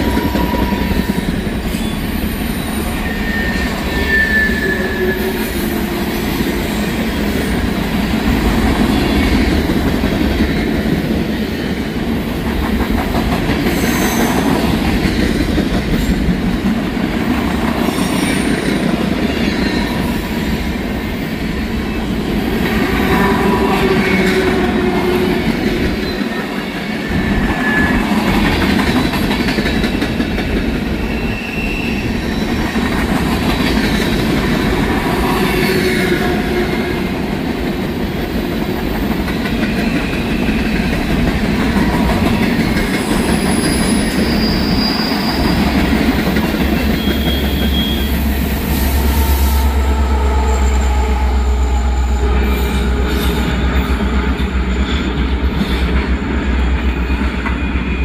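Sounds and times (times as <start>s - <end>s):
high-pitched wheel squeals: 0.0s - 6.1s, 27.1s - 28.2s, 31.0s - 32.7s, 43.0s - 45.7s, 46.8s - 55.2s
train wheels clacking on rail: 0.0s - 58.0s.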